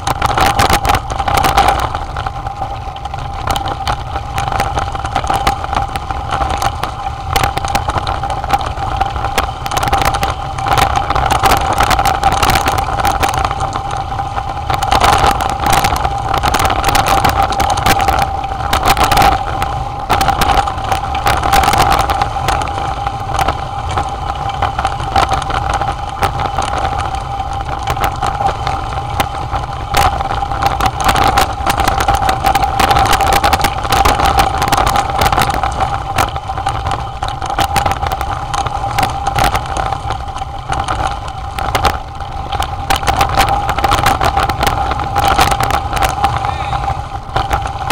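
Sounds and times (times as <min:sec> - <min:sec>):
bike rattling over stones: 0:00.0 - 0:47.9
steady mid-pitched hum: 0:00.0 - 0:47.9
wind rush on microphone: 0:00.0 - 0:47.9.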